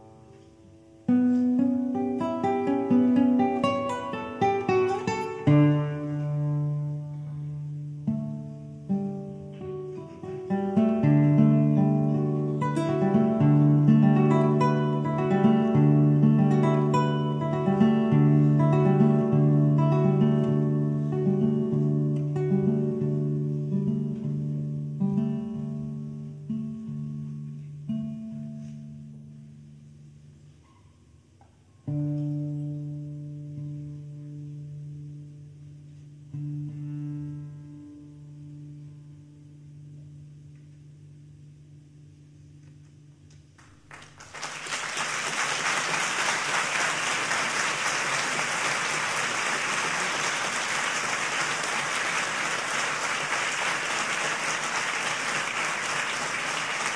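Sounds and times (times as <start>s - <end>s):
classical guitar played slowly: 0.0s - 43.9s
audience applause: 43.8s - 56.9s.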